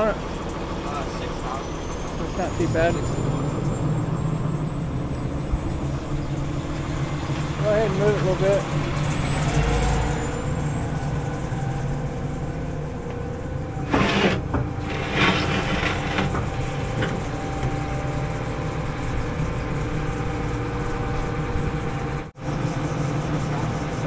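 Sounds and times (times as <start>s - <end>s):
excavator diesel engine running: 0.0s - 24.0s
short loud rough noises: 13.8s - 17.1s.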